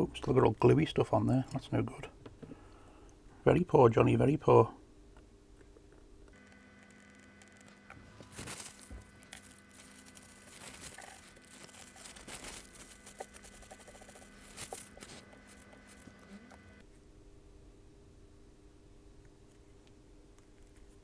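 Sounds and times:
steady hum: 0.0s - 21.0s
scratching and rubbing on circuit board: 6.4s - 16.8s
thin high whine: 6.4s - 16.8s.

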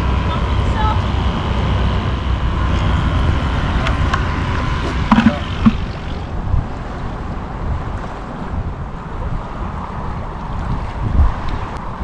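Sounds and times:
low outdoor rumble: 0.0s - 8.0s
sharp knocks and clatters: 5.1s - 6.0s.

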